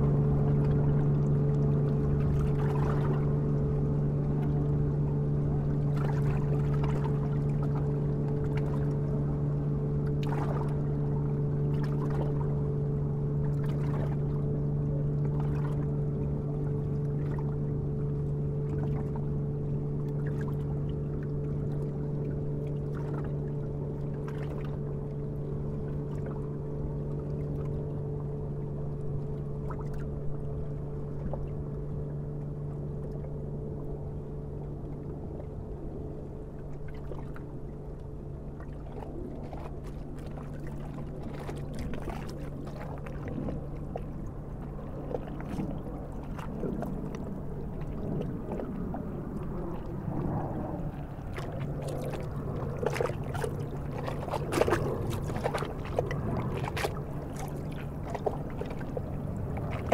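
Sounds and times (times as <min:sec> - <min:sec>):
water splashing: 0:00.0 - 0:04.8, 0:05.6 - 0:09.2, 0:10.0 - 0:12.6, 0:13.4 - 0:14.4, 0:15.2 - 0:19.4, 0:38.5 - 0:59.9
boat engine humming: 0:00.0 - 0:59.9.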